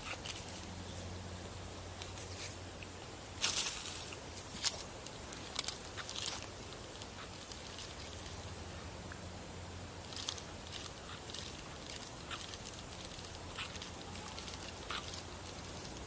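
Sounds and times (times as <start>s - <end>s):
fishing rod handling rustle: 3.4s - 8.4s.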